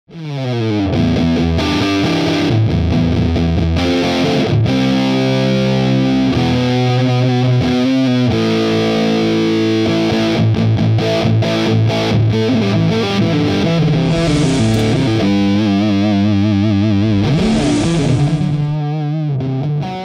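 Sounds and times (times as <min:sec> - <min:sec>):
fuzz-distorted electric guitar chords: 0:13.0 - 0:19.2.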